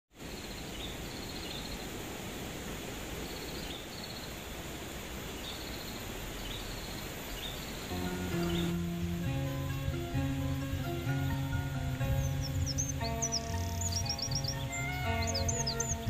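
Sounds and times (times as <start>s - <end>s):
insects hissing: 0.2s - 16.0s
plucked guitar music: 7.9s - 16.0s
short high chirping calls: 12.0s - 16.0s.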